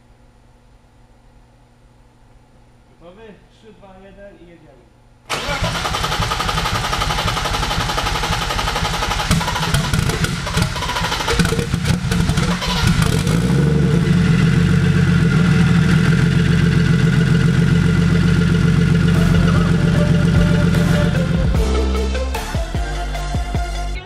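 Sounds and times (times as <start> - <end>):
car engine revving and idling: 5.3 - 21.7.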